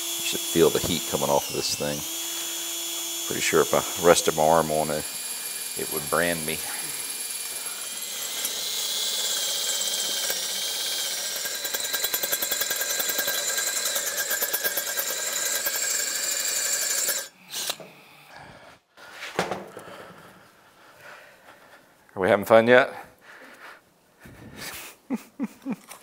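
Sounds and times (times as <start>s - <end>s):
drill boring into metal: 0.0s - 17.8s.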